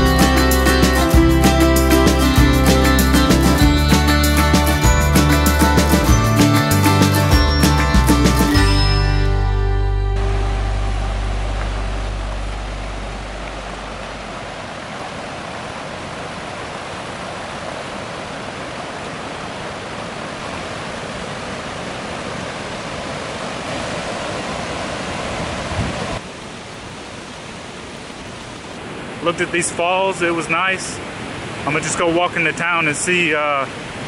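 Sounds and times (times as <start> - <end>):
music track: 0.0 - 14.5
river cascade rushing: 0.0 - 34.0.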